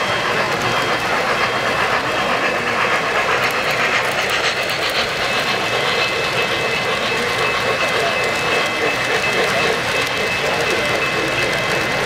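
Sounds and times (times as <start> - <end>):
model train passing close by: 0.0 - 12.0
model train wheels whirring and clattering: 0.0 - 12.0.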